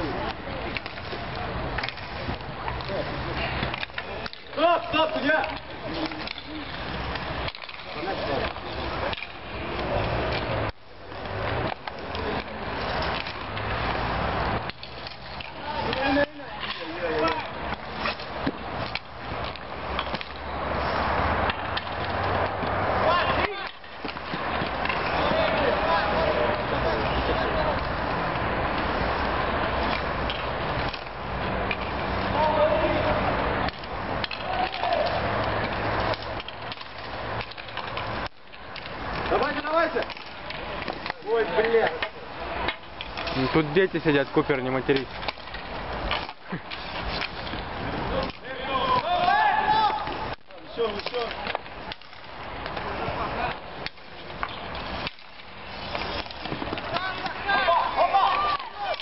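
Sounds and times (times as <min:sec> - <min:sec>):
hockey sticks and puck clacking: 0:00.0 - 0:59.0
skate wheels rolling on concrete: 0:00.0 - 0:59.0
person shouting: 0:48.7 - 0:50.1.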